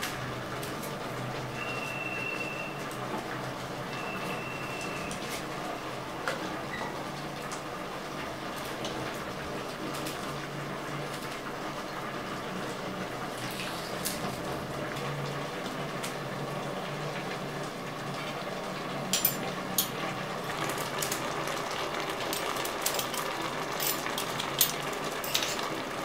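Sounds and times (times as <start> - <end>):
pot simmering: 0.0 - 26.0.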